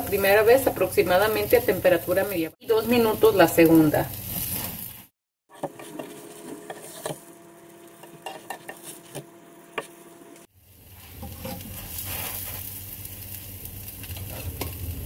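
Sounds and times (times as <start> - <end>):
patties sizzling in oil: 0.0 - 5.1, 10.4 - 15.0
spatula tapping and scraping pan: 5.5 - 7.2, 8.0 - 10.0.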